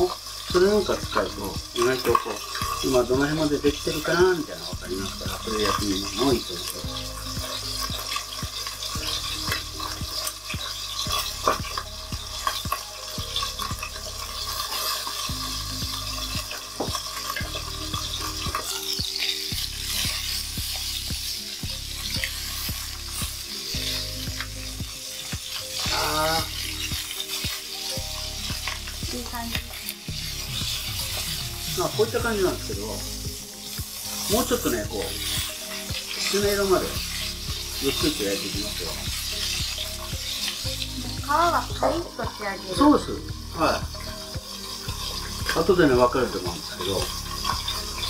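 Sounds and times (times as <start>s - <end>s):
chicken frying in oil: 0.0s - 48.0s.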